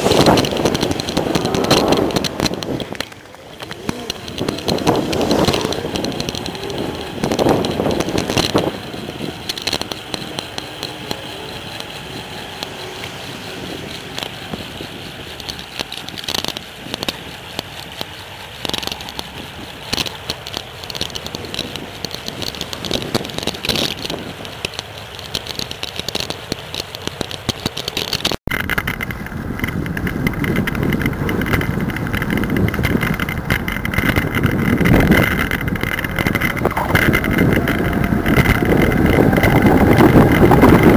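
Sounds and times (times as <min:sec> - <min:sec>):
bike knocks and rattles: 0:00.0 - 0:40.9
tyres on pavement: 0:00.0 - 0:40.9
wind noise: 0:00.0 - 0:40.9.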